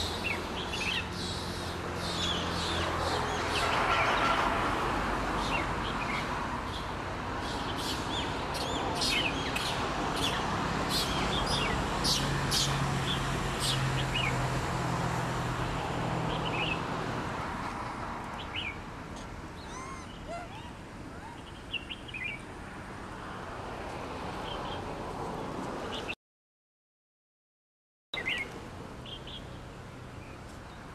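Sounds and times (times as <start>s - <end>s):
birds chirping: 0.0s - 3.8s, 18.4s - 22.5s
outdoor background noise: 0.0s - 26.2s, 28.2s - 30.9s.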